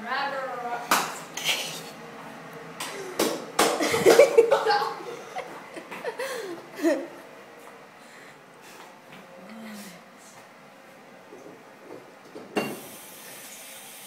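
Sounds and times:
girls laughing: 0:03.8 - 0:07.2.

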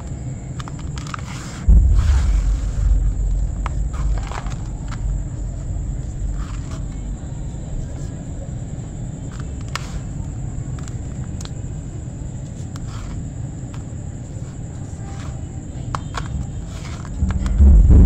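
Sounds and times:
small clicks and crackles: 0:00.0 - 0:02.2, 0:12.4 - 0:17.4
steady low rumble: 0:01.6 - 0:11.0, 0:16.4 - 0:18.0
faint high whine: 0:01.6 - 0:12.3, 0:15.8 - 0:18.0.

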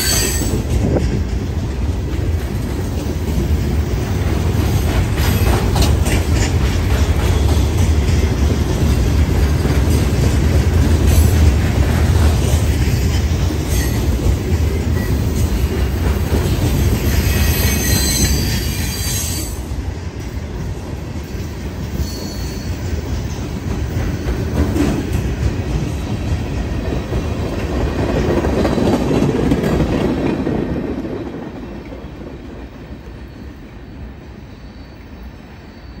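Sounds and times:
freight train wheels rumbling: 0:00.0 - 0:36.0
wheels squealing: 0:17.0 - 0:19.6.

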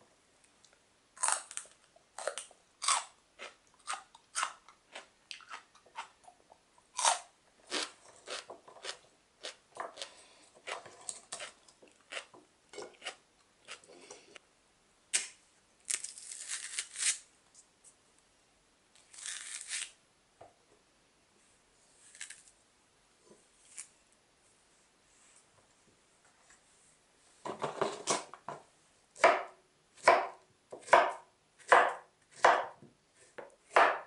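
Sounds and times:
knife chopping celery on board: 0:29.2 - 0:32.8, 0:33.4 - 0:34.0.

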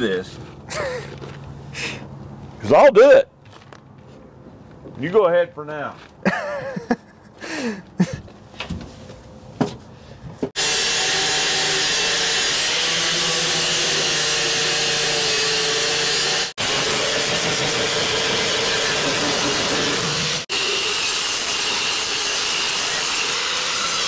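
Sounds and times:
angle grinder cutting metal: 0:10.6 - 0:24.0.

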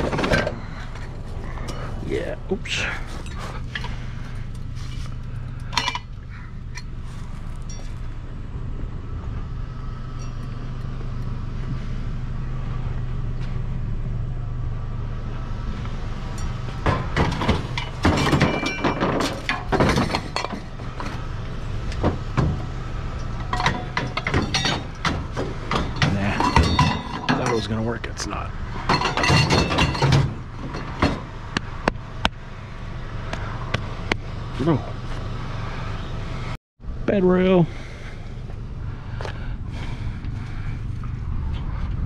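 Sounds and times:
objects clanking and knocking: 0:00.0 - 0:02.0, 0:02.8 - 0:06.9, 0:16.4 - 0:32.4
vehicle engine idling: 0:00.0 - 0:42.0.

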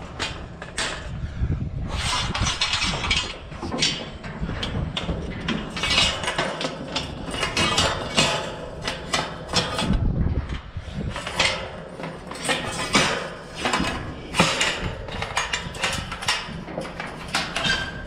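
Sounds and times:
steady low rumble: 0:00.0 - 0:12.0
metal panels clanking and rattling: 0:00.0 - 0:18.0.

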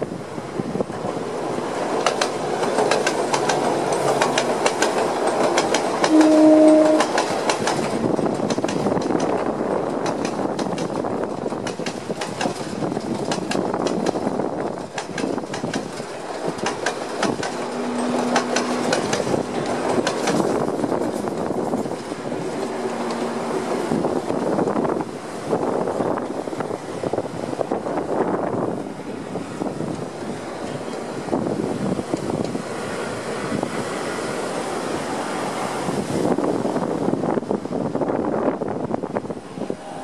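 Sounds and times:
train wheels clicking over rail joints: 0:00.8 - 0:28.2, 0:29.6 - 0:34.2
train horn blast: 0:06.0 - 0:07.3, 0:17.6 - 0:19.7.

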